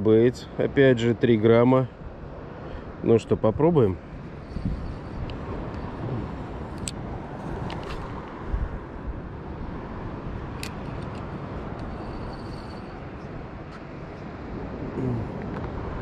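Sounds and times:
wind buffeting microphone: 3.4s - 13.6s.

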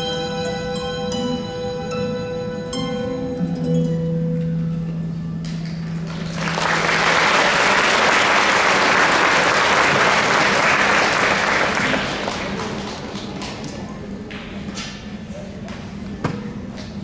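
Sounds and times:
audience applause: 5.9s - 13.9s.

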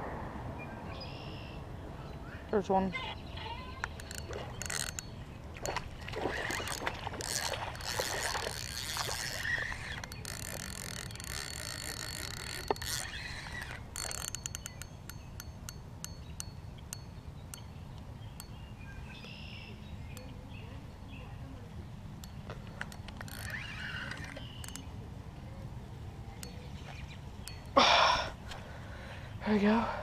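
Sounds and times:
light irregular clicks: 3.7s - 20.8s, 22.2s - 25.7s, 26.3s - 27.8s
water splashing and sloshing: 3.8s - 14.5s.

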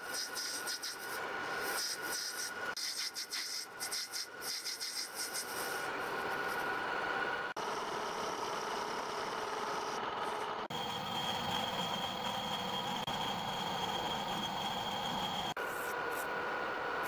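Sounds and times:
high whine: 5.7s - 17.0s
metal lathe cutting: 7.6s - 15.6s.

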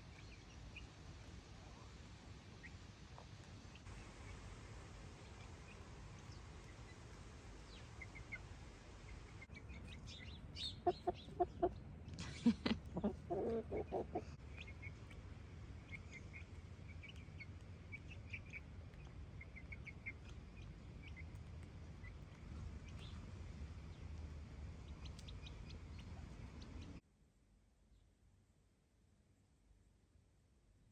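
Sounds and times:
chickens clucking: 9.2s - 11.8s, 12.7s - 15.2s.

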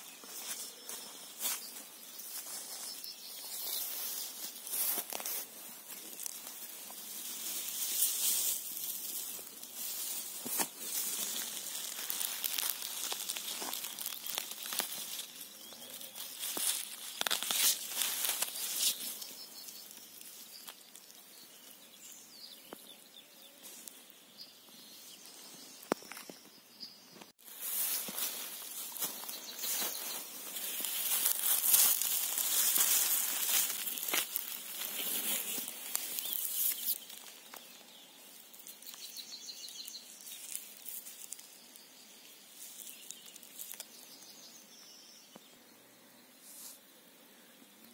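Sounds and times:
grass rustling and swishing: 0.0s - 22.2s, 27.4s - 44.1s
small snaps and crackles: 10.4s - 21.2s, 42.6s - 44.0s.

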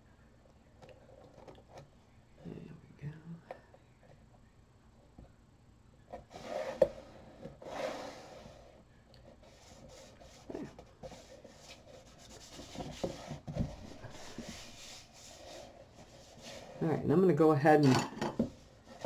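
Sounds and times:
card rubbing and rustling: 9.4s - 16.8s.

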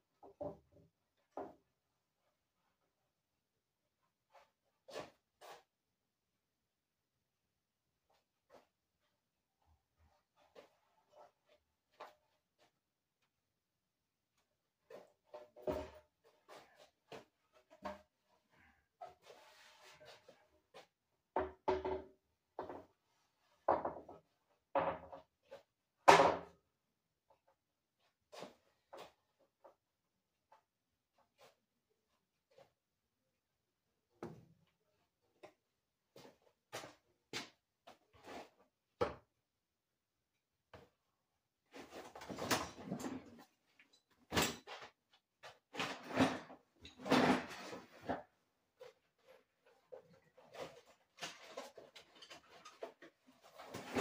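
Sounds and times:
shuffling and clattering objects: 41.7s - 54.0s.

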